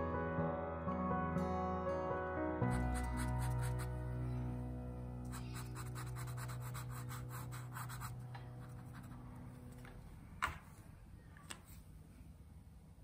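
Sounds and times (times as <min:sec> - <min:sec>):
marker scribbling on paper: 0:02.7 - 0:04.0, 0:05.3 - 0:09.2.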